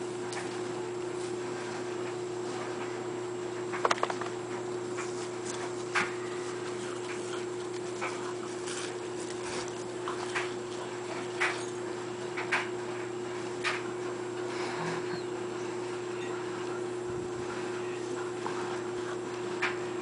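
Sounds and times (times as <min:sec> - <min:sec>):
dog panting: 0:06.5 - 0:11.5.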